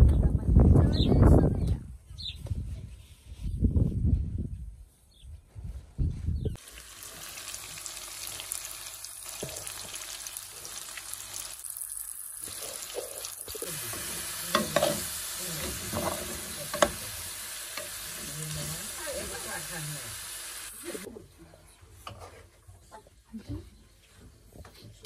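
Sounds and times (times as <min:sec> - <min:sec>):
food sizzling in a pan: 0:06.6 - 0:21.1.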